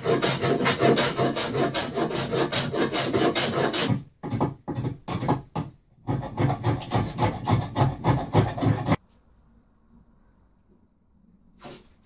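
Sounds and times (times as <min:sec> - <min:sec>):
abrasive tool scraping wood: 0:00.0 - 0:05.5, 0:06.1 - 0:09.0.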